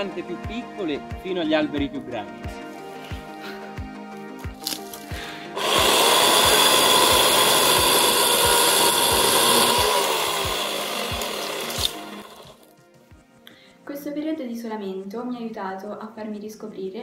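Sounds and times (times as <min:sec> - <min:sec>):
background music with a beat: 0:00.0 - 0:15.3
electric chainsaw cutting: 0:04.6 - 0:12.7.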